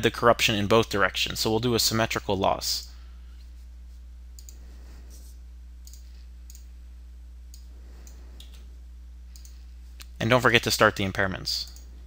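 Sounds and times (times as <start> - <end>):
low electrical hum: 0.0 - 12.0
computer mouse clicks: 4.4 - 4.6, 5.8 - 6.7, 9.3 - 10.2.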